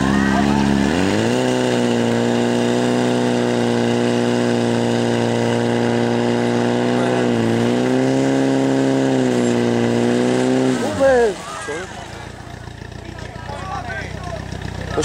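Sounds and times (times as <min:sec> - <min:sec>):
fire pump engine running: 0:00.0 - 0:15.0.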